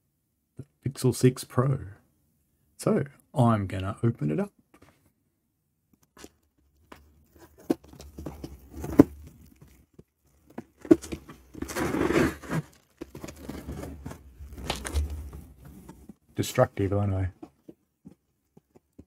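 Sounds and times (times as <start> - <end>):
scrapes and small knocks: 6.0 - 16.3, 17.0 - 19.0
cardboard tearing: 7.3 - 16.0.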